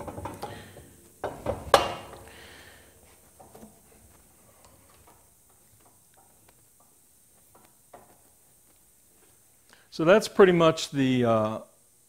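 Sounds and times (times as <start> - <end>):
faint ticks and clicks: 3.4 - 9.8.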